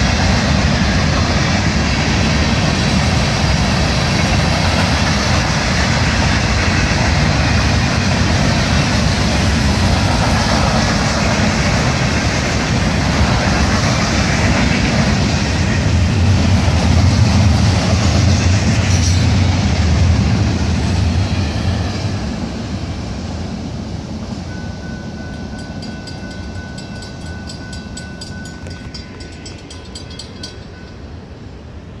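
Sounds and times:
freight train rolling past: 0.0 - 32.0
thin steady high tone: 24.5 - 31.2.

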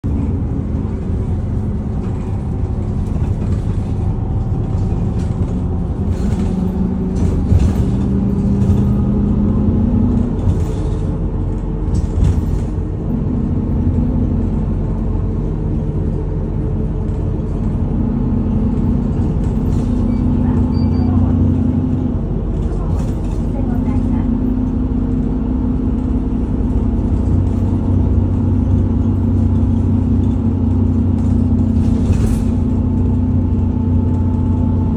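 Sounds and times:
bus engine drone: 0.0 - 34.9
road noise rumble: 0.0 - 34.9.

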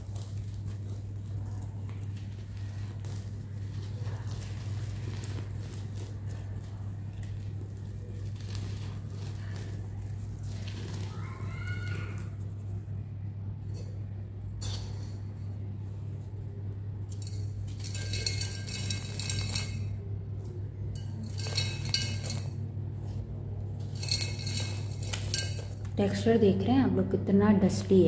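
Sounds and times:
grit trickling into a bowl: 0.0 - 26.0
grains clinking on bowl: 17.0 - 26.0.

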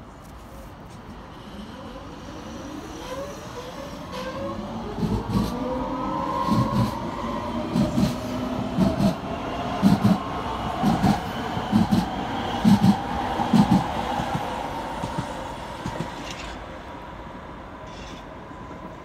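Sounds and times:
train wheels clacking over rail joints: 7.8 - 9.2, 10.8 - 16.6.

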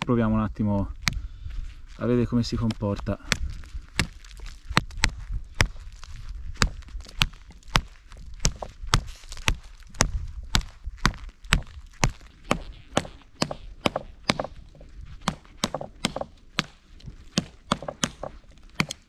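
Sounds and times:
knife chopping into log: 2.6 - 5.8, 6.6 - 14.6, 15.2 - 19.0.

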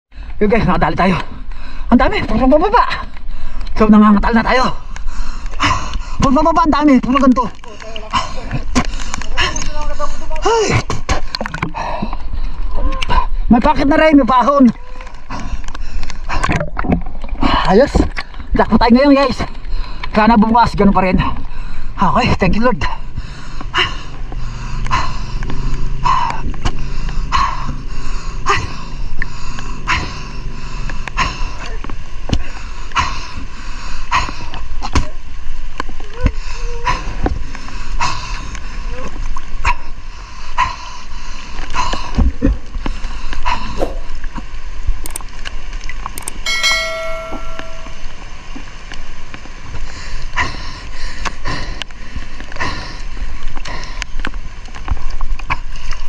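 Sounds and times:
water sloshing and splashing: 1.0 - 56.0
river rushing: 46.2 - 49.3
pitched tone with overtones: 46.5 - 48.2.

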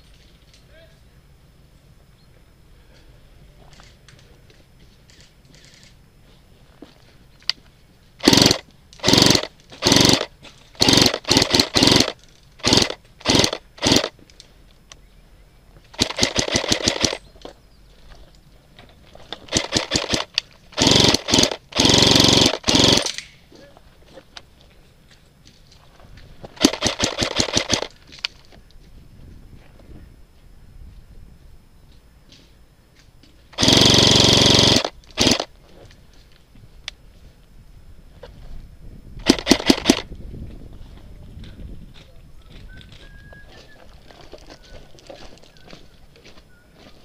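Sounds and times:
airsoft rifle firing bursts: 8.2 - 14.2, 15.9 - 17.2, 19.4 - 23.2, 26.6 - 28.0, 33.6 - 35.5, 39.2 - 40.1.

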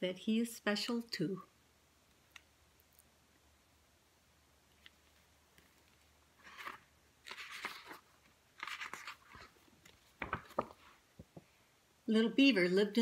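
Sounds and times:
book pages turning: 4.7 - 11.3.

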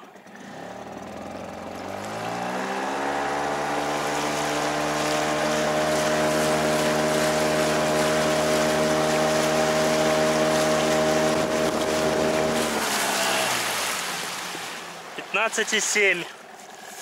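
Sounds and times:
outboard motor running: 0.0 - 17.0
water rushing along hull: 0.0 - 17.0.

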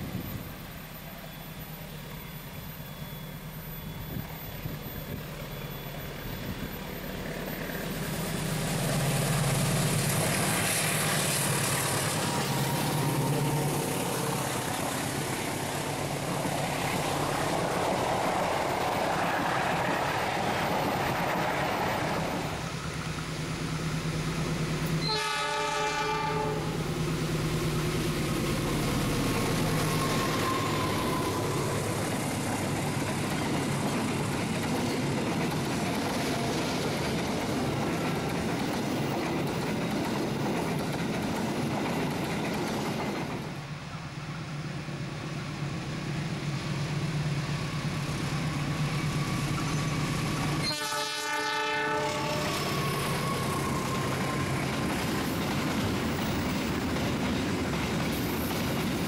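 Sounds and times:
wheels rumbling on rail: 0.0 - 59.0
locomotive horn blast: 25.0 - 26.8, 50.6 - 53.5.

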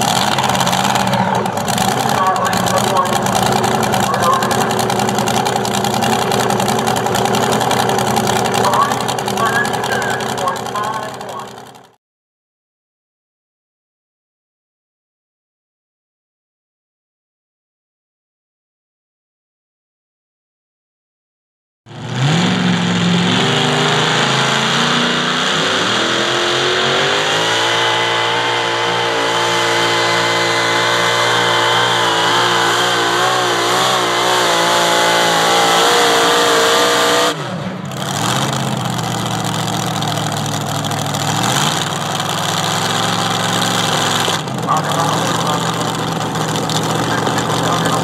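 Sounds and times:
supercharged tractor engine roaring: 0.0 - 12.0, 21.9 - 48.0.

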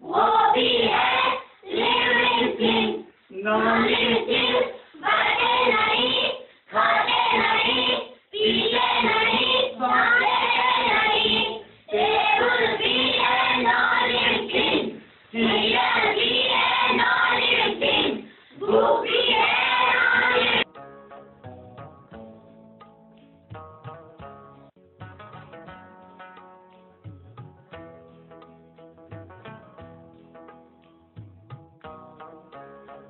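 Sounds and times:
children singing in unison: 0.0 - 20.7.

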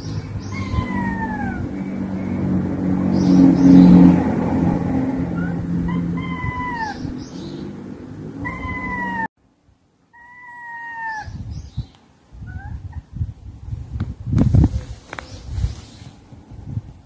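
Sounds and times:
cats yowling: 0.0 - 2.2, 5.3 - 7.2, 8.4 - 9.3, 10.1 - 11.4.

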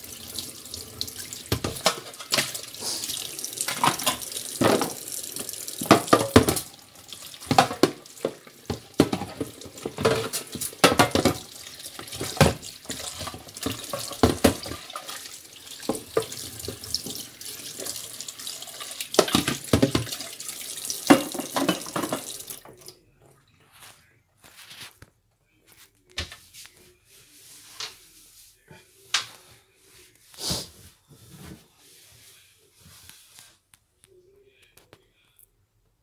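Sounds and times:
splashes and knocks while rinsing: 0.0 - 22.9.

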